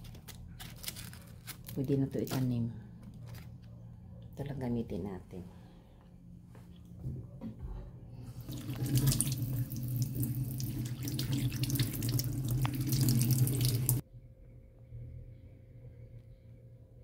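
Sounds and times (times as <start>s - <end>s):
tap water running into a sink: 8.4s - 14.0s.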